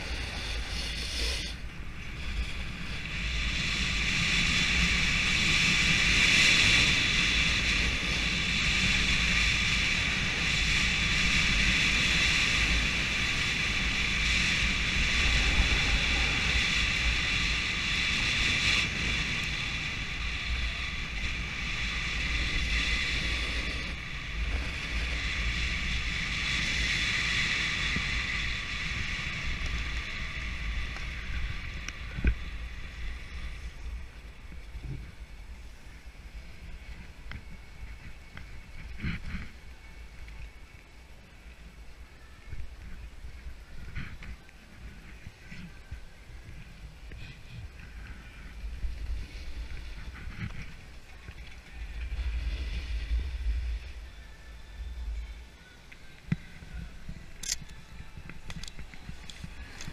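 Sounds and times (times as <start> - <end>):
snowboard scraping over snow: 0.0 - 40.1, 43.0 - 55.2
wind buffeting microphone: 0.0 - 40.5.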